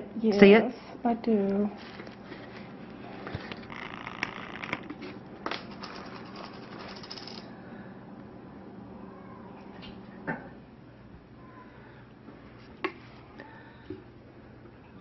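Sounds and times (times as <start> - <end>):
soft handling rustling: 1.5 - 3.8.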